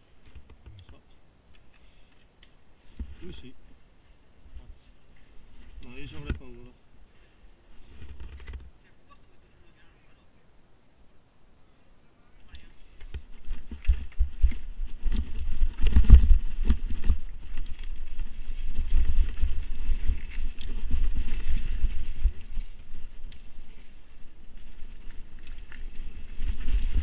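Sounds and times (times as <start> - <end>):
wind buffeting microphone: 13.1 - 27.0.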